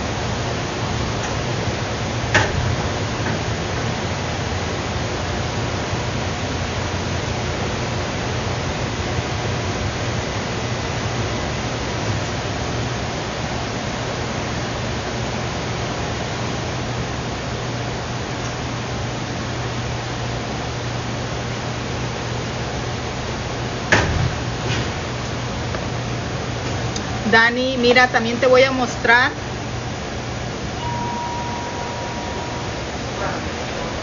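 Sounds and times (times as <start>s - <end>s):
low hum: 29.4s - 34.0s.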